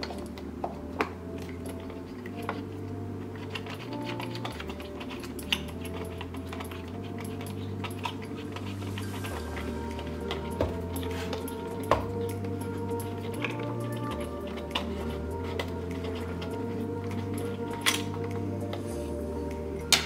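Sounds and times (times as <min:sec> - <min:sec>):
low background drone: 0:00.0 - 0:20.0.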